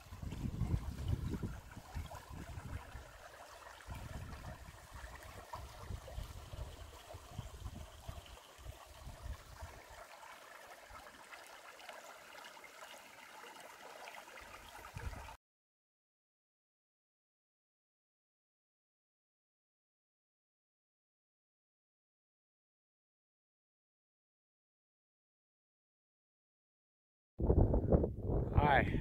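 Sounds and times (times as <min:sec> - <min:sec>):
creek babbling over rocks: 0:00.0 - 0:15.4.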